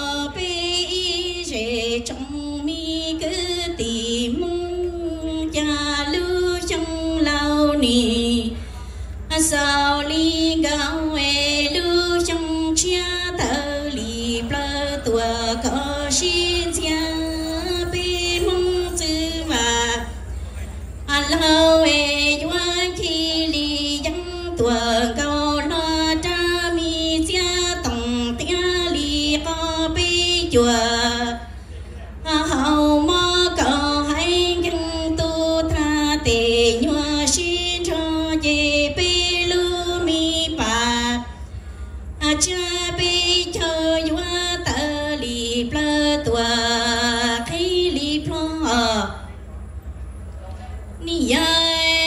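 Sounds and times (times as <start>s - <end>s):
woman singing unaccompanied: 0.0s - 8.6s, 9.3s - 20.2s, 21.1s - 31.5s, 32.2s - 41.4s, 42.2s - 49.3s, 51.0s - 52.0s.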